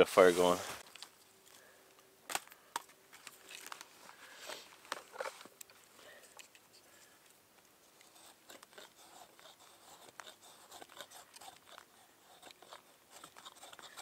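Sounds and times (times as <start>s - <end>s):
knife shaving wood: 7.9s - 14.0s.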